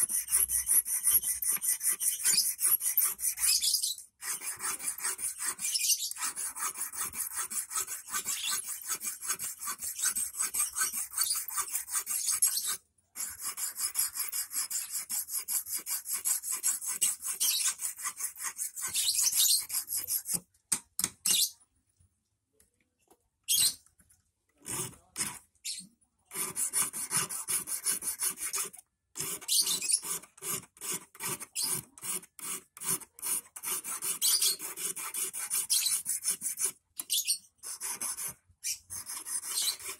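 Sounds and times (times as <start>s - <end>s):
hand file rasping on wire: 0.0s - 20.4s, 24.6s - 25.4s, 26.3s - 39.9s.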